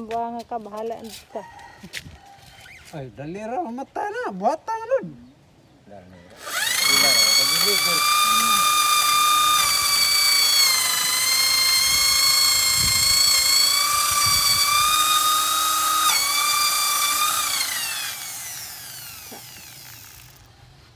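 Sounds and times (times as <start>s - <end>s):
electric drill boring wood: 6.4s - 20.5s.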